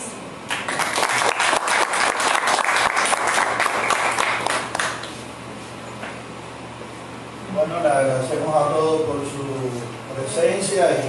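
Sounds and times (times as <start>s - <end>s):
audience applauding: 0.5s - 5.2s.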